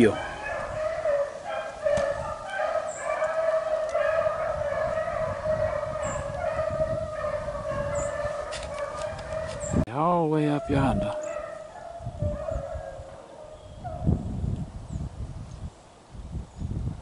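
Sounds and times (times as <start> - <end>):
dogs baying: 0.0 - 9.8, 10.6 - 14.1.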